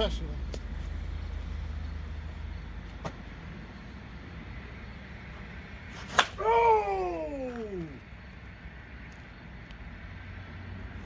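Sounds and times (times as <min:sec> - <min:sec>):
steady low hum: 0:00.0 - 0:11.0
bat cracking on ball: 0:06.0 - 0:06.5
man shouting: 0:06.4 - 0:08.0.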